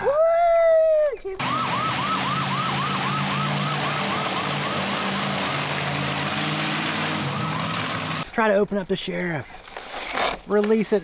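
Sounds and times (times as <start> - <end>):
yelp siren wailing: 1.4 - 5.2, 7.0 - 8.2.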